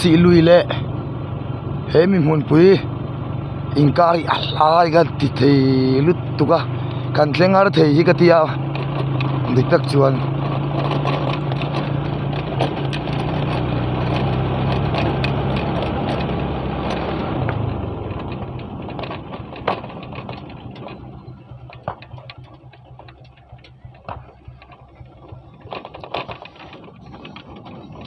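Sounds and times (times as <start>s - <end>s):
motorcycle engine running: 0.0s - 28.0s
wind and road noise: 0.0s - 28.0s
knocks and rattles: 8.5s - 28.0s.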